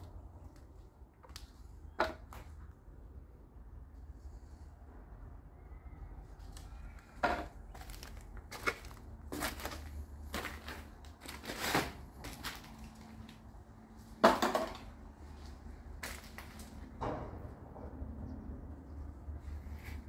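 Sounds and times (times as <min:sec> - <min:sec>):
footsteps crunching on debris: 0:07.3 - 0:13.4, 0:15.3 - 0:16.8.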